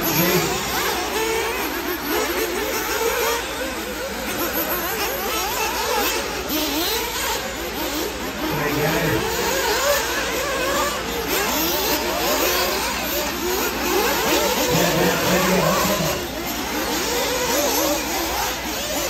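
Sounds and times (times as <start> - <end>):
rc buggy engines whining: 0.0 - 19.0.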